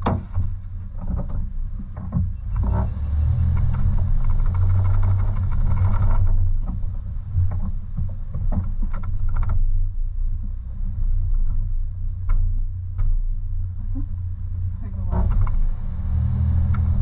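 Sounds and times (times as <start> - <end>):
crunches and knocks: 0.0 - 10.0
engine and drivetrain rumble: 0.0 - 17.0.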